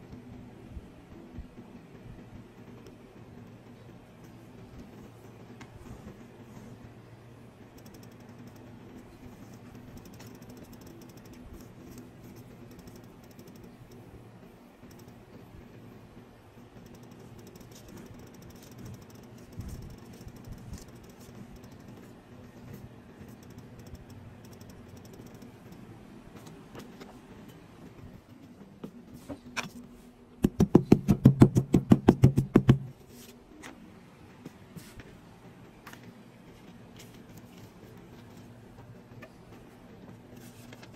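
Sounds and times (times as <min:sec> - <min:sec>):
steady low hum: 0:00.0 - 0:40.9
fingers clicking and tapping rubber: 0:30.4 - 0:32.9.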